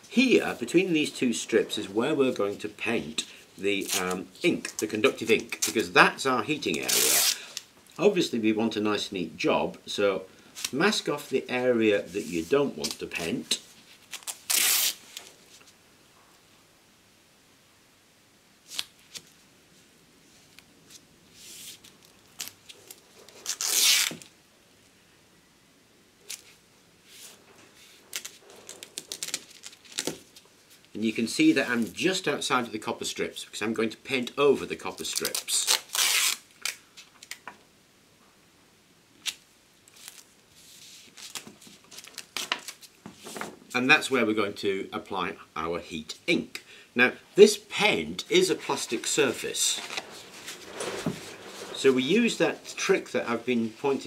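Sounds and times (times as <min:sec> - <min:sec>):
tape rustling and ticking: 0:02.8 - 0:05.9, 0:27.4 - 0:31.0, 0:35.0 - 0:37.6, 0:41.0 - 0:43.7
tape ripping: 0:03.8 - 0:05.9, 0:06.6 - 0:07.6, 0:14.0 - 0:15.4, 0:21.5 - 0:24.3, 0:28.1 - 0:30.4, 0:35.0 - 0:37.4, 0:49.7 - 0:52.9
taps and rustles of tape: 0:06.6 - 0:08.0, 0:20.5 - 0:24.3, 0:27.2 - 0:31.0, 0:35.0 - 0:37.6, 0:39.2 - 0:43.8
tape pulling off roll: 0:49.8 - 0:51.9.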